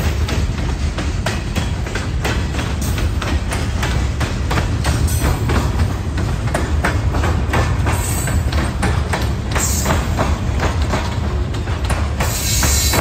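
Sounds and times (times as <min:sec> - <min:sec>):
freight train rumbling past: 0:00.0 - 0:13.0
train wheels clanking: 0:00.0 - 0:13.0.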